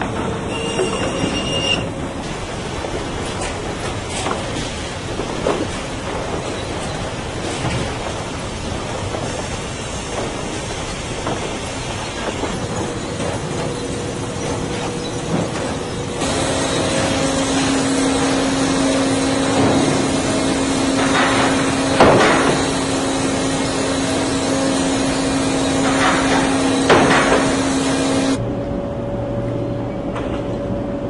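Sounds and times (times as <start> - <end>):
sawmill machinery running: 0.0 - 29.5
constant hum: 0.0 - 31.0
boards knocking and clattering: 20.9 - 22.8.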